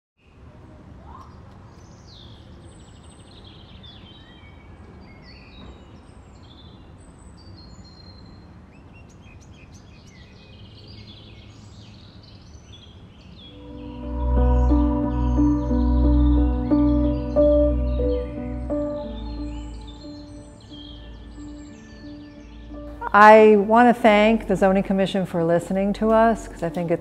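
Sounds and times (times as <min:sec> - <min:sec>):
small birds chirping: 0:14.7 - 0:23.0.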